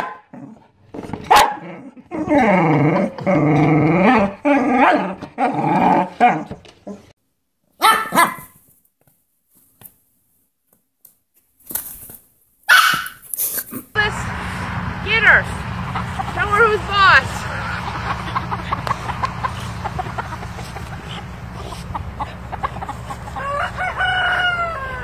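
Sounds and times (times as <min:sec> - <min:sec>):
dog growling and barking: 0:00.0 - 0:07.1.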